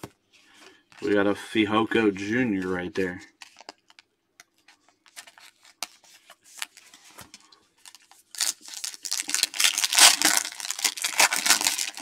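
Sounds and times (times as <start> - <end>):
foil wrapper crinkling and ripping: 4.9 - 7.2, 7.8 - 12.0.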